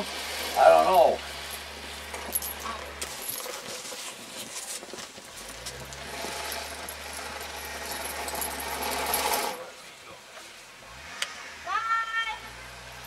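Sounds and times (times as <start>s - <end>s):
wheel spinning in snow: 0.0s - 9.6s
truck engine droning: 5.4s - 9.9s.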